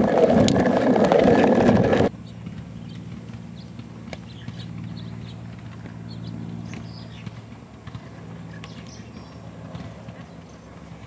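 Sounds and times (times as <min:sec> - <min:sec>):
wind buffeting microphone: 0:00.0 - 0:02.1.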